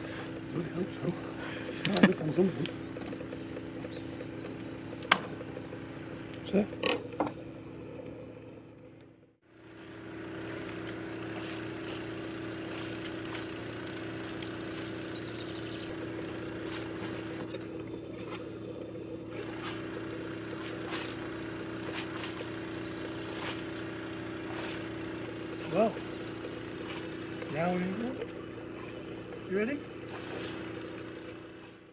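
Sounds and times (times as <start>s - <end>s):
motor hum: 0.0s - 31.9s.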